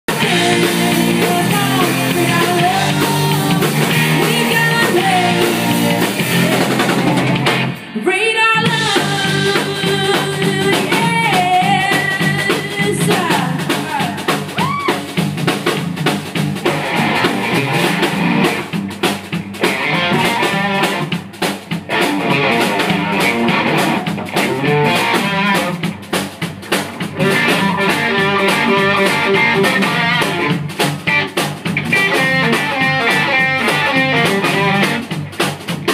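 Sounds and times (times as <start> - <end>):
bass guitar: 0.0 - 8.0, 8.6 - 35.9
drum kit: 0.0 - 35.9
woman singing: 0.1 - 7.4, 8.0 - 14.9
electric guitars: 0.1 - 35.9.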